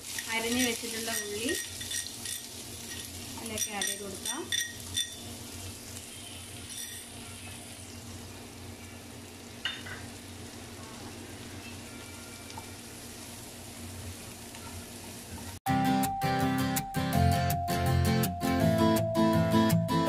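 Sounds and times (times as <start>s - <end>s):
onions sizzling in frying pan: 0.0s - 15.6s.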